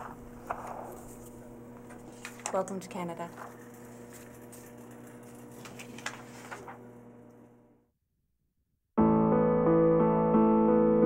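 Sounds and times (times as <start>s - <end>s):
piano chords: 9.0s - 11.0s.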